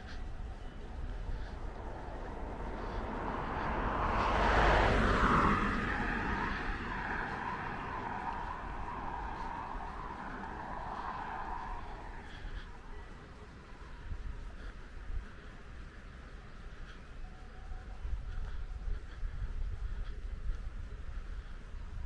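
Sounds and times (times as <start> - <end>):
car passing by: 0.0 - 14.8
traffic noise: 0.0 - 22.0.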